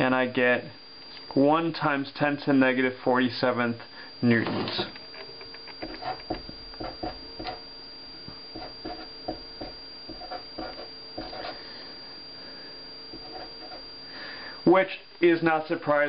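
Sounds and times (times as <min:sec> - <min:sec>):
faint hum: 0:00.0 - 0:16.0
marker scratching on paper: 0:05.8 - 0:07.6, 0:08.6 - 0:09.1, 0:10.1 - 0:11.6, 0:13.1 - 0:13.8.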